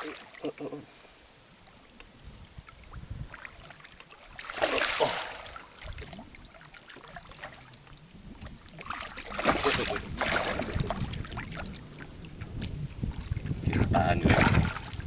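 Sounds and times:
fish splashing in water: 0:03.2 - 0:07.8, 0:08.6 - 0:13.6.

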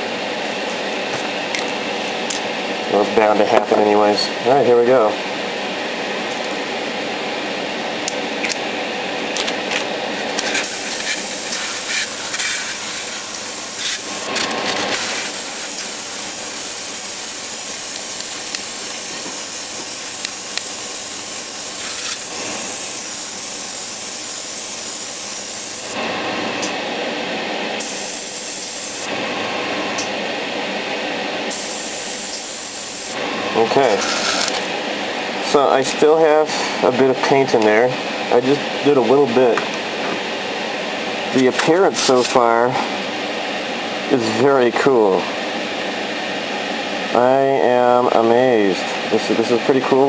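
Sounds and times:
steady hum of an air compressor: 0:00.0 - 0:50.0
airbrush spraying hiss: 0:10.3 - 0:34.8, 0:41.4 - 0:43.0.

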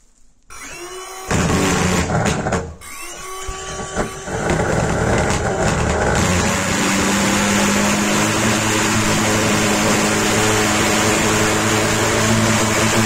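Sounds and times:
rising whine: 0:04.3 - 0:13.0.

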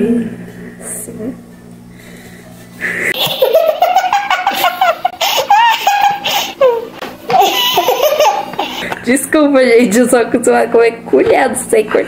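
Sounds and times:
high-pitched giggling laughter: 0:03.2 - 0:08.9.

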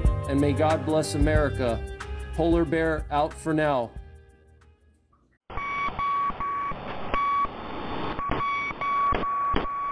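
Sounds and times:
radio static hiss: 0:06.6 - 0:09.7.

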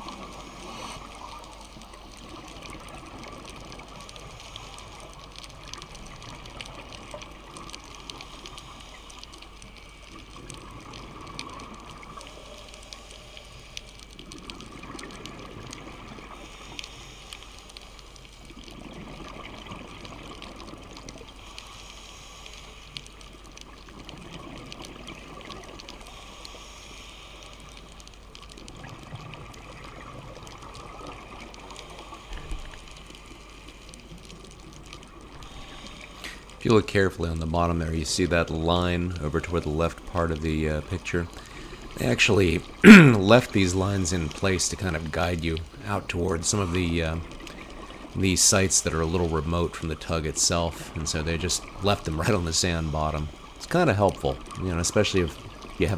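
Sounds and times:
regulator breathing hiss: 0:08.1 - 0:10.0, 0:16.4 - 0:18.1, 0:21.4 - 0:23.0, 0:26.1 - 0:27.8
gurgling exhaled bubbles: 0:38.6 - 0:55.9.

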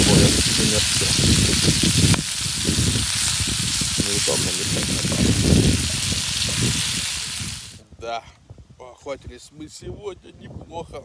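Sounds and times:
vegetables sizzling in a pan: 0:00.0 - 0:07.8.

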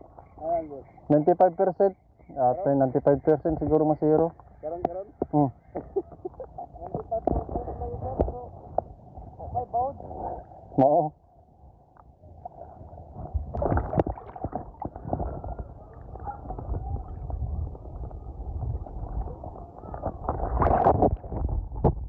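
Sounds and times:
muffled water sloshing: 0:12.4 - 0:22.0.

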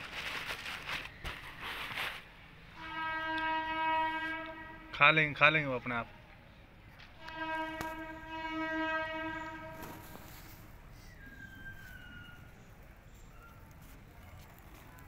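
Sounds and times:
horn steady note: 0:02.8 - 0:05.2, 0:07.2 - 0:10.3.

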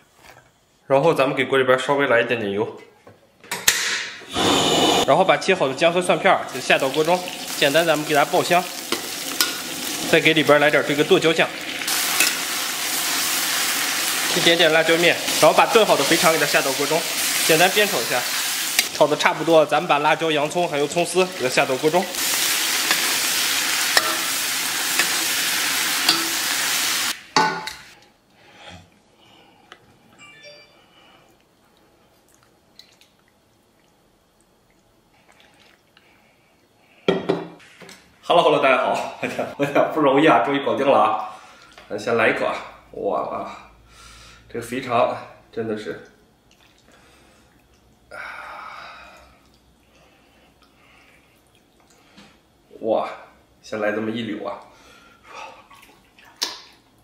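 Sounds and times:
food sizzling in a wok: 0:06.5 - 0:27.9
man sighing: 0:48.1 - 0:49.2.

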